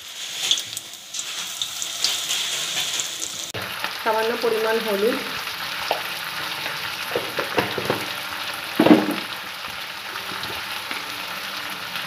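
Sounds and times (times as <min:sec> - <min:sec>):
vegetables sizzling in hot oil: 0:00.0 - 0:12.0
knock: 0:07.2 - 0:08.1, 0:08.8 - 0:09.3.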